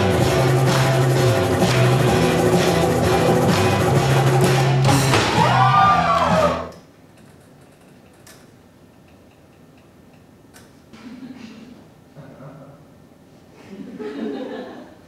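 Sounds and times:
guitar-led music: 0.0 - 6.7.

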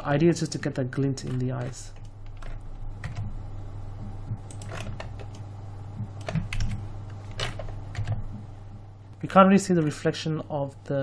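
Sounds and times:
steady low hum: 0.0 - 11.0
keyboard and mouse clicks: 1.0 - 3.3, 4.3 - 8.4.

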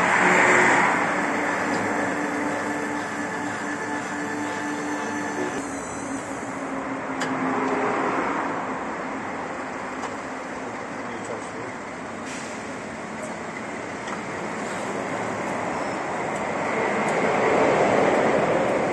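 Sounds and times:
brake lathe running: 0.1 - 6.9.

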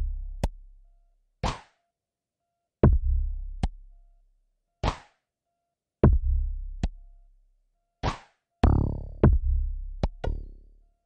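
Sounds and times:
deep electronic kick drum: 2.8 - 3.8, 6.0 - 7.0, 8.6 - 10.6.

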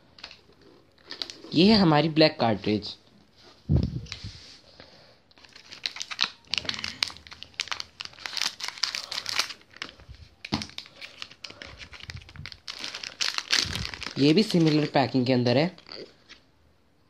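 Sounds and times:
packaging crinkling and tearing: 0.2 - 1.8, 5.3 - 16.4.

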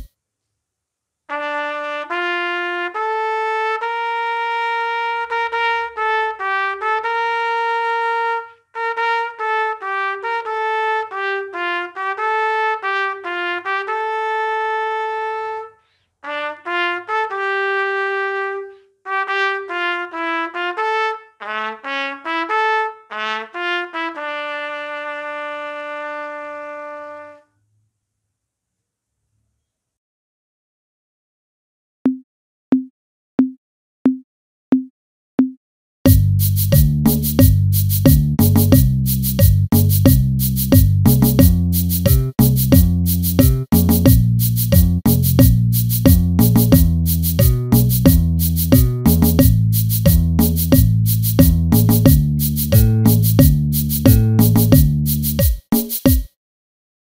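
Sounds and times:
solo trumpet melody: 1.3 - 27.5.

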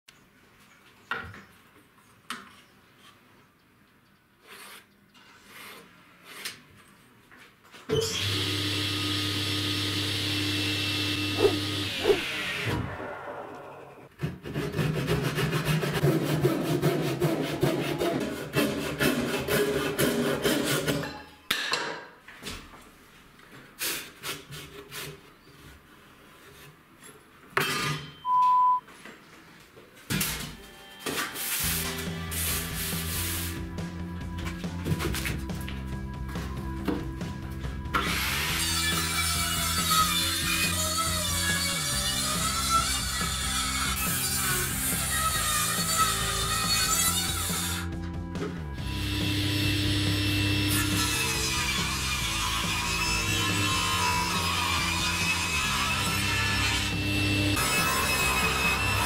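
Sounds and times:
pencil scratching on wood: 4.4 - 6.6
short high beep: 28.2 - 28.8.

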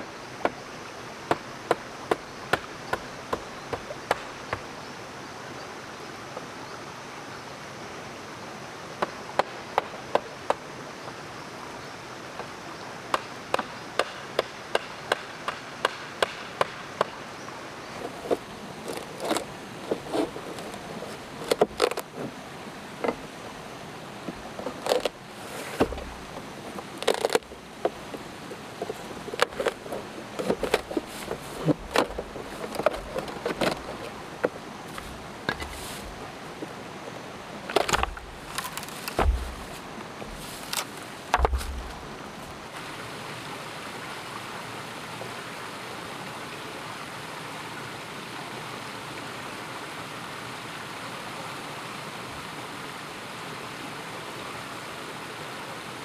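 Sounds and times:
forest insects hissing: 0.0 - 56.0
sharp knocks and clicks on wood: 1.3 - 4.7, 9.0 - 10.6, 13.1 - 17.2, 37.7 - 42.0.

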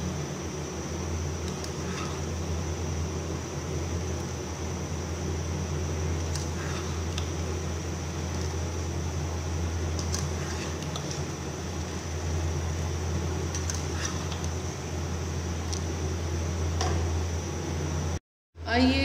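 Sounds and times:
pot of rice boiling: 0.0 - 17.3.

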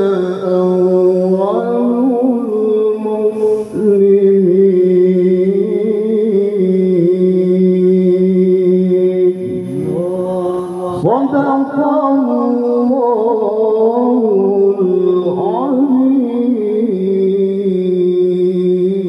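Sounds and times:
man chanting melodic recitation: 0.0 - 19.0.

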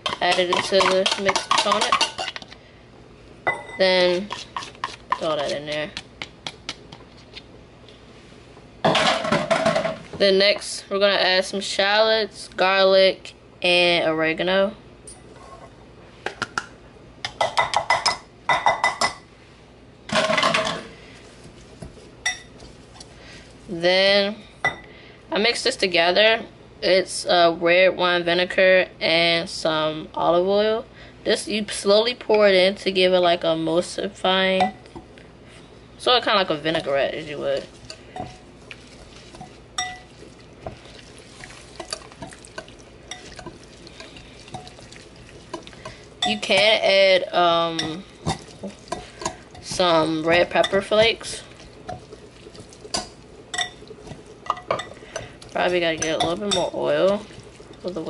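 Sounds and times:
utensil clinking on dish: 37.6 - 46.8, 47.8 - 58.0.

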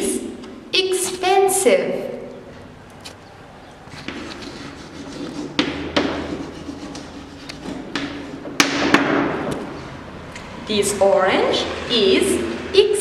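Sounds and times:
chalk scratching on chalkboard: 4.0 - 8.4
chalk tapping on board: 4.0 - 8.8.

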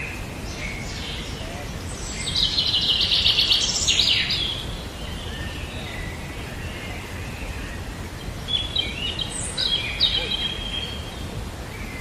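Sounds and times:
birds chattering trill: 0.0 - 12.0
steady low background noise: 0.0 - 12.0
whistled bird notes: 8.5 - 12.0.

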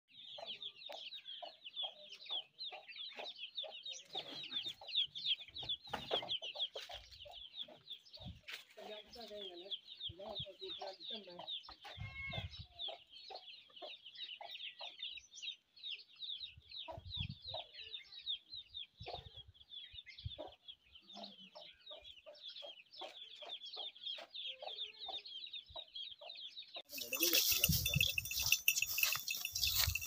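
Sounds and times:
chickens clucking: 0.1 - 15.7, 16.5 - 17.9, 18.8 - 30.0
quick high chirping: 26.9 - 30.0.

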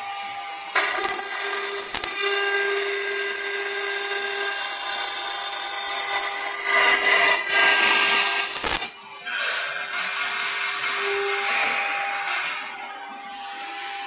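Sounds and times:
router grinding stone: 0.8 - 8.9.

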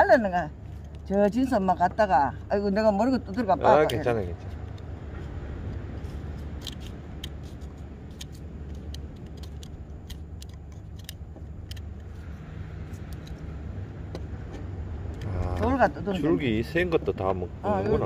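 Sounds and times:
steady low rumble: 0.0 - 18.0
scissors snipping seaweed: 5.7 - 12.1.

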